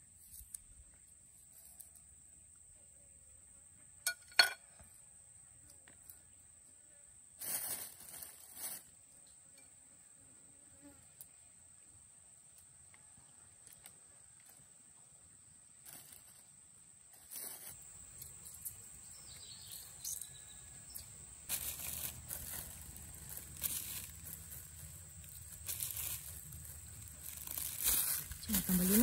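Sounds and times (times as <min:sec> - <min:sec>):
plastic bag rustling: 0:07.4 - 0:08.9, 0:17.1 - 0:17.9, 0:21.5 - 0:29.0
hand handling noise: 0:17.1 - 0:20.3, 0:21.0 - 0:29.0
high-pitched insect drone: 0:17.3 - 0:29.0.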